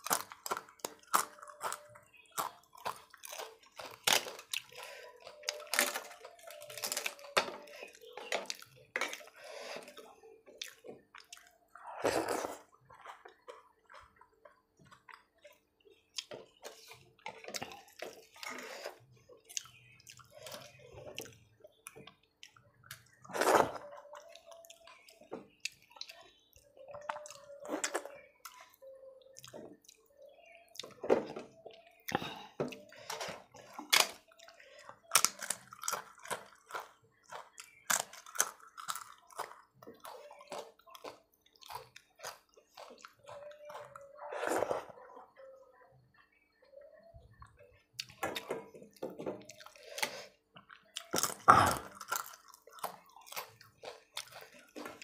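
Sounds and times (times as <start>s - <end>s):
chewing: 0.0s - 46.8s, 47.4s - 55.0s.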